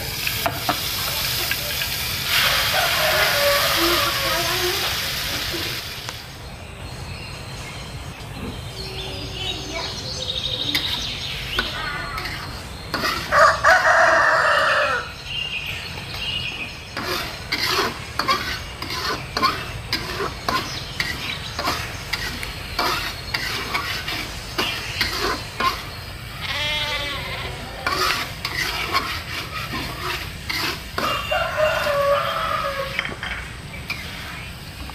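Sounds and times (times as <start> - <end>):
metal spatula scraping wok: 0.0 - 6.0, 10.7 - 14.7, 16.9 - 26.0, 27.5 - 34.9
rooster crowing: 2.3 - 4.8, 13.2 - 15.2, 31.0 - 33.1.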